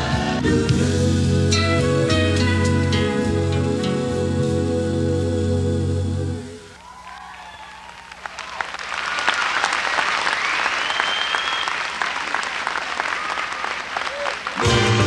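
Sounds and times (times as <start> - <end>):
audience applauding and cheering: 6.8 - 15.0
rising whistling tone: 10.3 - 11.8.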